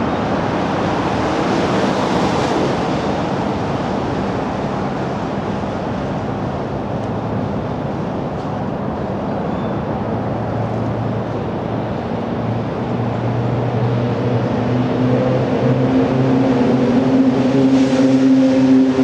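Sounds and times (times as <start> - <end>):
higher engine tone: 13.2 - 19.0.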